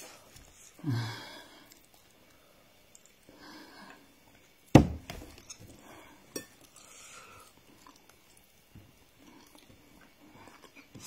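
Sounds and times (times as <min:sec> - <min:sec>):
person chewing food: 0:01.5 - 0:03.3, 0:06.4 - 0:11.0.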